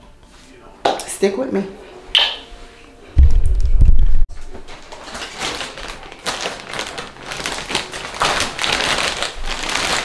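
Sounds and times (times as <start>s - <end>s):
shopping bag rustling: 4.4s - 10.0s.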